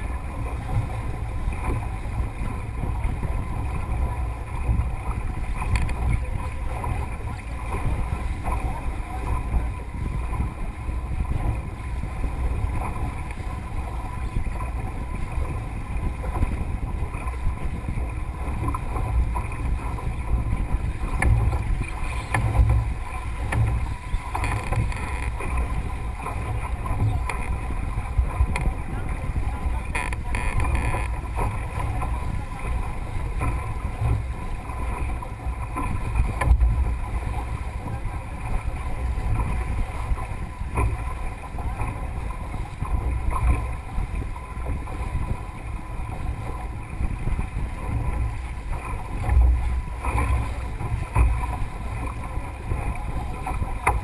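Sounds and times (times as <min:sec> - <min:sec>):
water rushing along hull: 0:00.0 - 0:54.0
wind buffeting microphone: 0:00.0 - 0:54.0.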